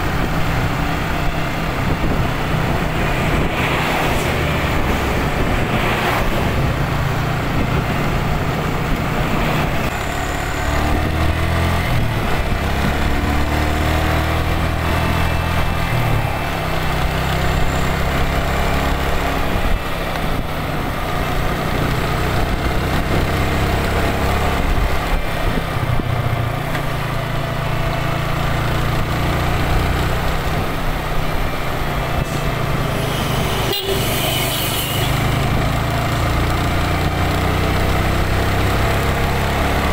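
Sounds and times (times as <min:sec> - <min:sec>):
wind noise: 0:00.0 - 0:26.5
traffic passing: 0:00.0 - 0:39.9.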